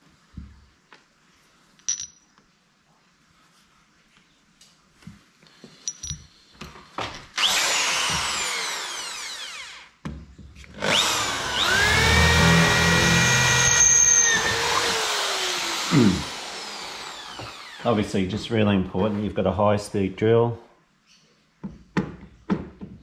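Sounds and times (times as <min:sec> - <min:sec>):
power drill boring into metal: 0:07.4 - 0:09.9, 0:10.8 - 0:18.1.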